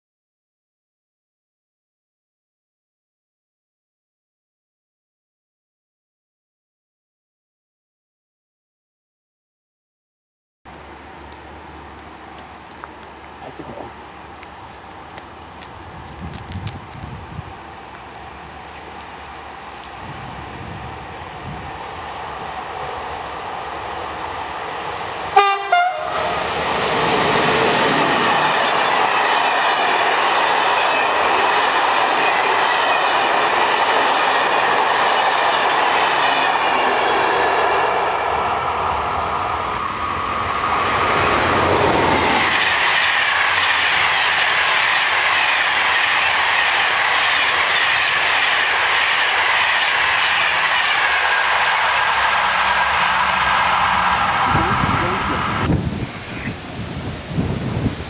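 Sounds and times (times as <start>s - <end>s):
trains passing at speed: 10.7s - 58.0s
locomotive horn blasts: 25.3s - 26.4s
rail clatter: 40.1s - 55.8s.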